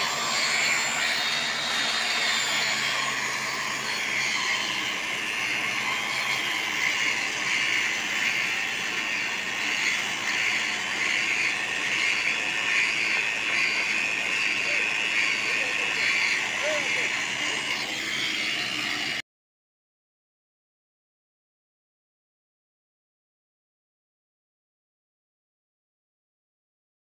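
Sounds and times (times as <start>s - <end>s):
rail grinder grinding whine: 0.0s - 19.2s.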